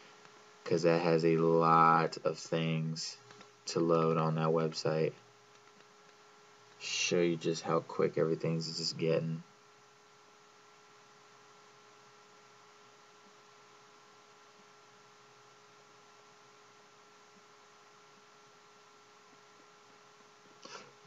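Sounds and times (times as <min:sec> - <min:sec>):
faint electrical hum: 0:00.0 - 0:21.0
low hiss: 0:00.0 - 0:21.0.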